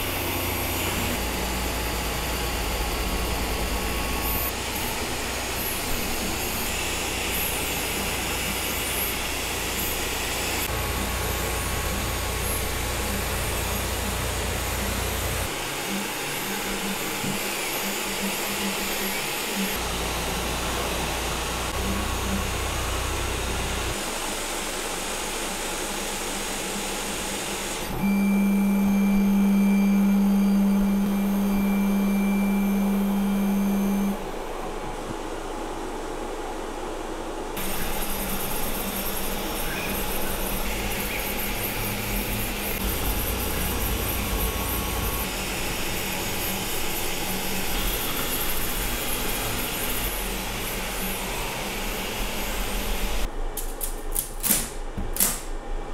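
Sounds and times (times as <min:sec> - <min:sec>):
printer fans whirring: 0:00.0 - 0:24.9, 0:27.4 - 0:53.3
stepper motors whining: 0:27.8 - 0:34.2, 0:37.6 - 0:53.3
steady low hum: 0:28.0 - 0:53.6.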